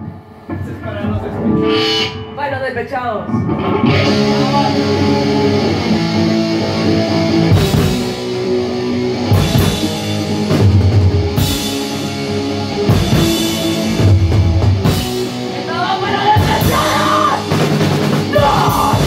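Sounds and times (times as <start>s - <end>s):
electric guitar chords: 0.0s - 19.0s
drum kit: 3.4s - 19.0s.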